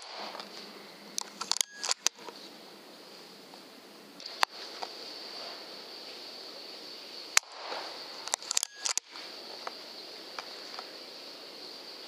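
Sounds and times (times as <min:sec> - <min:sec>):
sharp clicks: 0:00.0 - 0:02.4, 0:04.2 - 0:04.9, 0:07.4 - 0:09.8
steady high hiss: 0:00.0 - 0:12.0.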